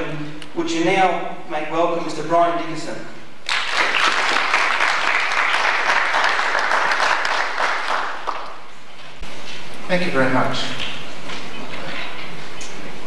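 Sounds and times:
audience applauding: 0:03.4 - 0:08.7.

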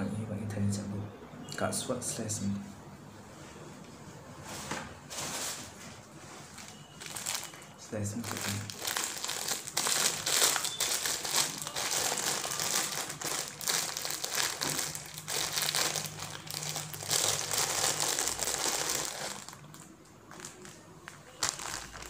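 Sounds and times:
plastic bag crinkling: 0:06.4 - 0:22.0.

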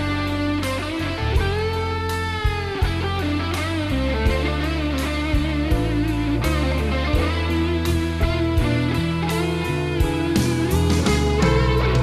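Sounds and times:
bass line: 0:00.0 - 0:12.0
electric guitar bending notes: 0:00.0 - 0:12.0
drum hits: 0:08.2 - 0:12.0.

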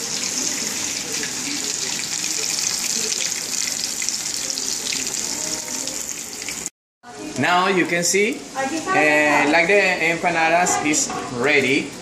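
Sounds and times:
oil sizzling in a frying pan: 0:00.0 - 0:06.7.

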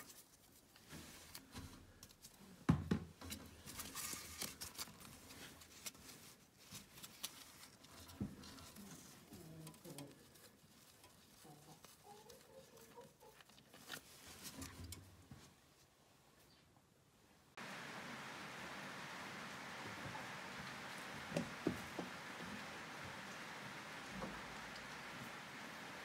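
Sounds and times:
cloth rag rustling: 0:03.6 - 0:16.3.

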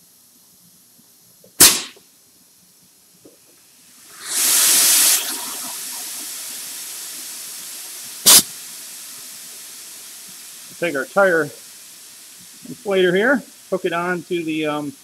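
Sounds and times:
compressed air hissing: 0:01.5 - 0:02.0, 0:03.7 - 0:15.0
sharp burst of air: 0:01.6 - 0:02.0, 0:03.7 - 0:15.0.

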